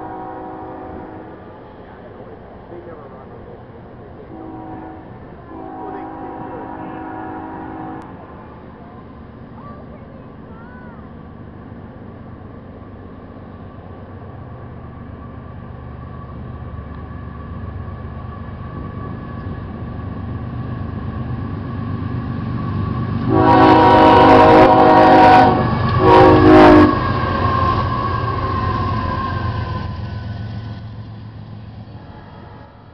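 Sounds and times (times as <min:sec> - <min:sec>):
locomotive air horn blasts: 0:00.0 - 0:01.5, 0:04.3 - 0:08.2, 0:23.3 - 0:27.5
diesel locomotives rumbling: 0:00.0 - 0:32.9.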